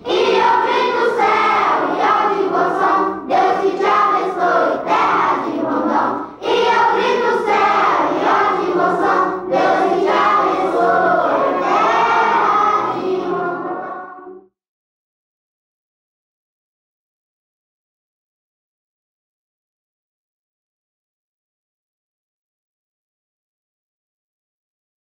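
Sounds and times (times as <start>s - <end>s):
choir singing: 0.0s - 14.5s.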